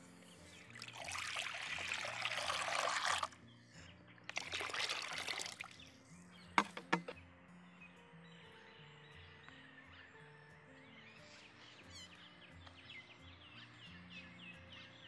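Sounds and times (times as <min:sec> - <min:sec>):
water pouring into pot: 0:00.8 - 0:03.4, 0:04.3 - 0:05.8.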